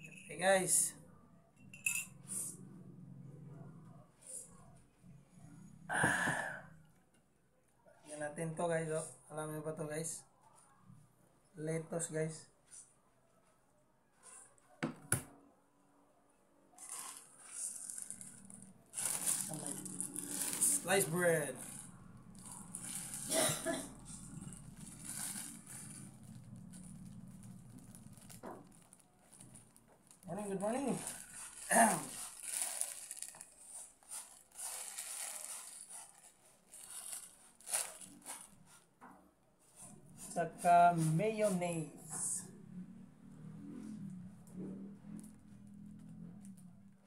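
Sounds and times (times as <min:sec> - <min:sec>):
plastic bread bag rustling: 0:16.8 - 0:38.9.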